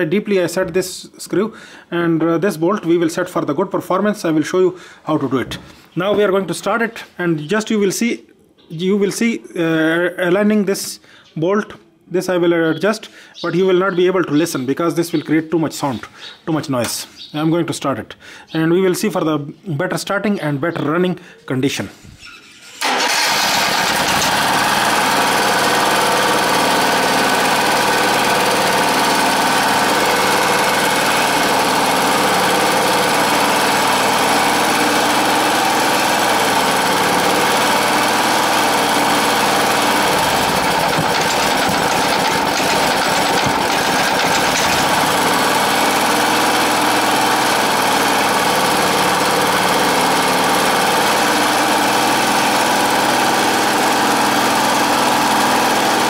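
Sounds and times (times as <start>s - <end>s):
small generator engine running: 22.8s - 56.0s.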